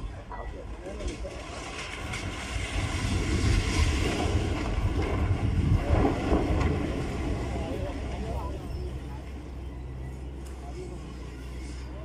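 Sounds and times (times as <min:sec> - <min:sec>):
building collapsing rumble: 0:00.7 - 0:09.6
wind buffeting microphone: 0:01.2 - 0:10.0.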